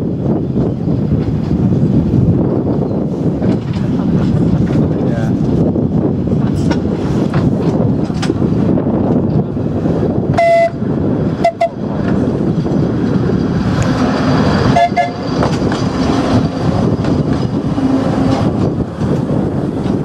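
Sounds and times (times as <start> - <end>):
electric tram rumbling on track: 0.0 - 20.0
tram horn toots: 10.3 - 12.0, 13.8 - 16.7, 17.6 - 18.7.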